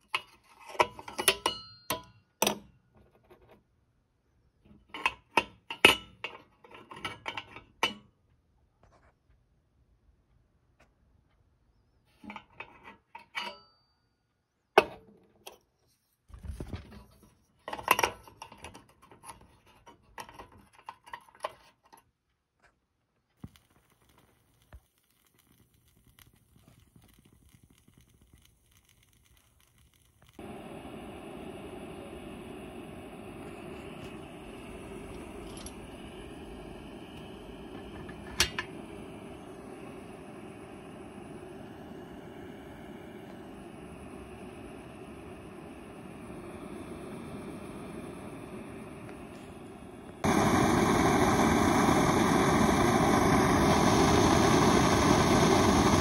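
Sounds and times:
metal stove parts clinking: 0.0s - 2.7s, 4.7s - 8.1s, 12.2s - 13.9s, 17.6s - 22.1s, 35.0s - 36.6s, 37.8s - 38.8s
metal pot stand clanking: 0.2s - 2.6s
stove burner rushing: 4.8s - 8.0s, 23.4s - 56.0s.

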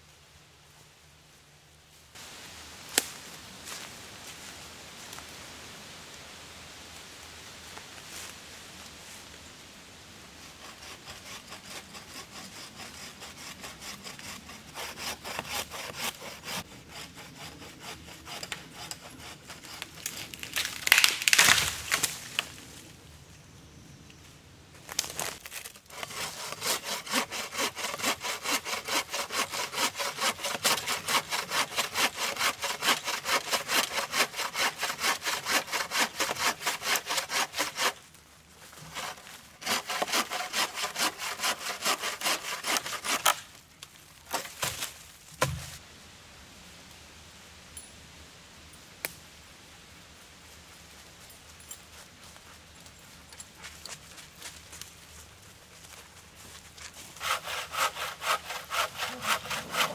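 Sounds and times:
hand saw cutting wood: 10.6s - 21.0s, 25.5s - 38.0s, 38.7s - 43.4s, 57.0s - 59.9s.

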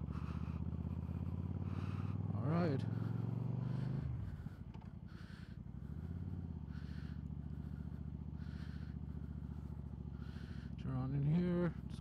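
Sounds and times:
motorcycle engine running: 0.0s - 12.0s.

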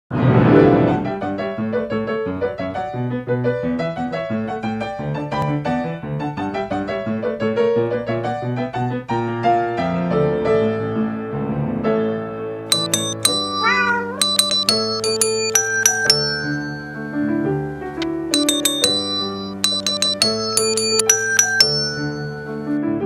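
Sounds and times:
piano music: 12.7s - 23.0s.

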